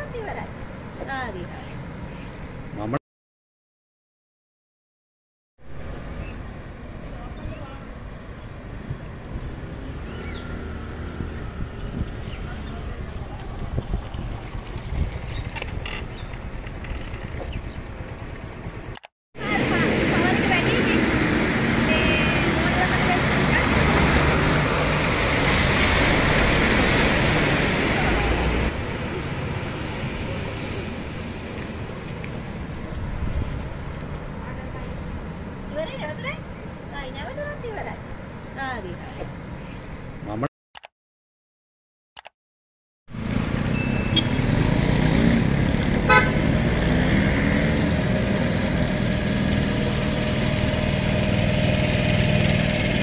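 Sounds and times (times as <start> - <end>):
distant truck driving through water: 5.7 - 38.3, 43.1 - 53.0
wheels splashing water: 6.8 - 38.8, 43.2 - 53.0
bus engine running: 15.8 - 25.4, 43.2 - 53.0
rush of floodwater: 19.4 - 38.8
vehicle horn toot: 43.8 - 44.4, 46.1 - 46.4.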